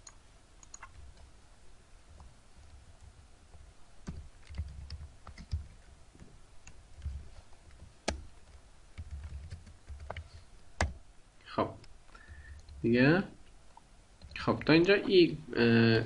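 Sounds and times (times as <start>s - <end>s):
sharp clicks: 0.0s - 1.3s
typing on computer keyboard: 4.0s - 5.8s, 7.0s - 10.9s, 12.2s - 12.8s.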